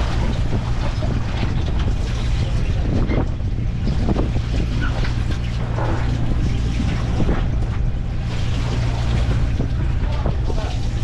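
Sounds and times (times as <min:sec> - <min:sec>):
boat machinery droning: 0:00.0 - 0:11.0
wind buffeting microphone: 0:00.0 - 0:11.0.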